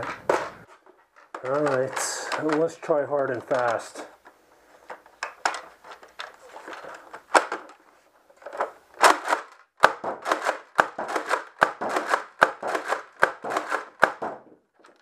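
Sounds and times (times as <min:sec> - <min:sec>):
scattered clicks: 0:01.4 - 0:04.1
toy blaster slide clacking: 0:10.2 - 0:14.1.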